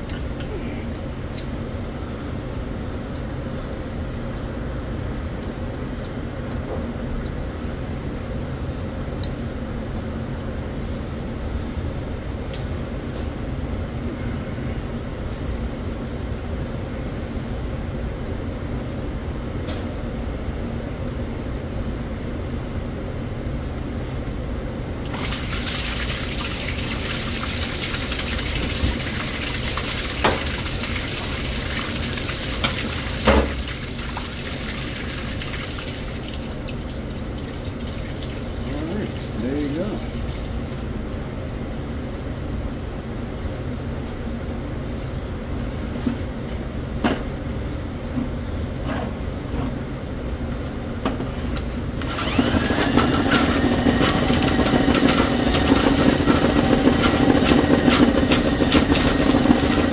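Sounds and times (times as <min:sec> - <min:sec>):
wastewater gushing onto tile floor: 0:25.0 - 0:41.0, 0:52.1 - 0:59.9
kitchen machinery humming: 0:25.0 - 0:41.5, 0:51.9 - 0:59.9.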